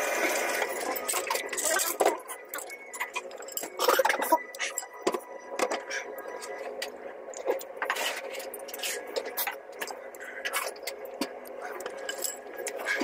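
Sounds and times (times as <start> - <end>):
steady background hum: 0.0 - 13.0
utensils clinking against a bowl: 0.4 - 5.8, 11.6 - 13.0.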